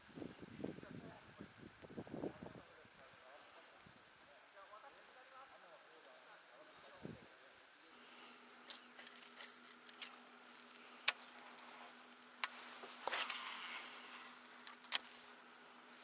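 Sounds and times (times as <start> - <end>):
faint steady hum: 0.0 - 16.0
sharp clicks: 14.2 - 15.2.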